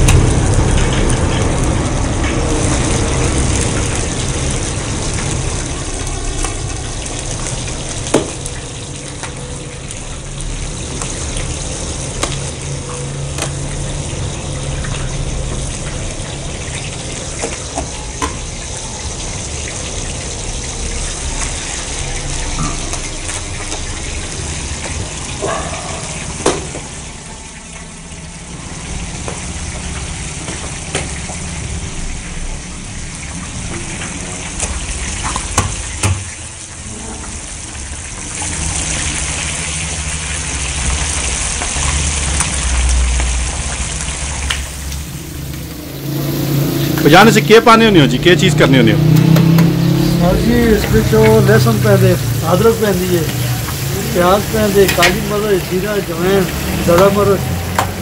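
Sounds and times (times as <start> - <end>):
food sizzling in hot oil: 0.0 - 58.0
low rumble: 43.1 - 49.0.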